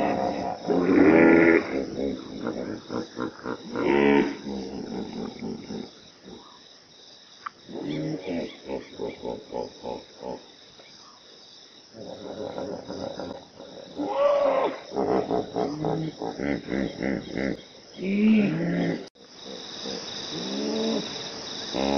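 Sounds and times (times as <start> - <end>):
hippopotamus grunting: 0.0 - 6.6, 11.9 - 21.1.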